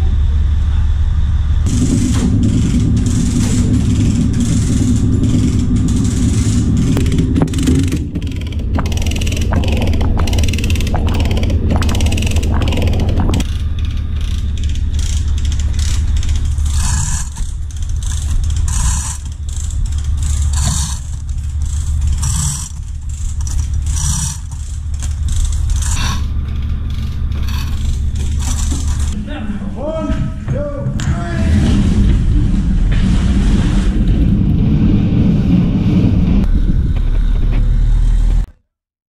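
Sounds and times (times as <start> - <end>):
boat engine droning: 0.0 - 38.5
rhythmic machinery scraping: 1.6 - 29.2
deck machinery clicks: 1.7 - 29.2.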